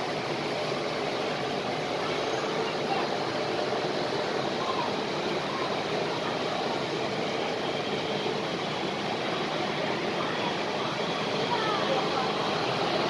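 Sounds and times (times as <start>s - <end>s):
rushing indoor hum: 0.0s - 13.0s
faint indistinct voices: 0.8s - 13.0s.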